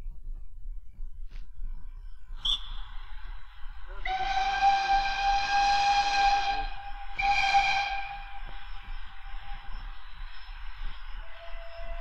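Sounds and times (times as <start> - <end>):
steam locomotive whistle blasts: 4.0 - 10.1.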